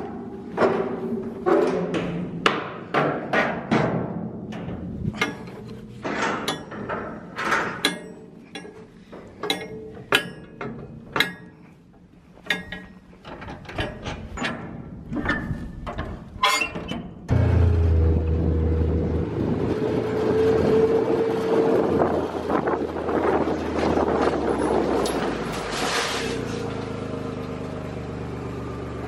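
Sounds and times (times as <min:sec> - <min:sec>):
metal container doors clanking shut: 0:00.0 - 0:08.3.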